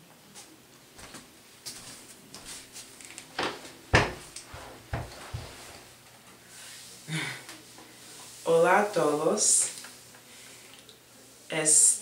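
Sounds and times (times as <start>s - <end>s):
chair knocks and bumps: 3.4s - 5.5s.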